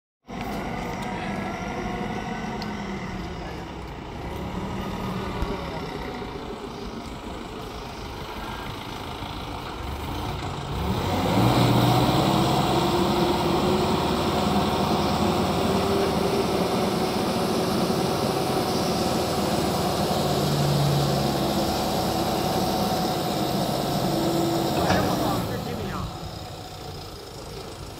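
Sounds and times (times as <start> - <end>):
diesel forklift engine running: 0.3 - 27.9
hydraulic hum: 14.5 - 26.8.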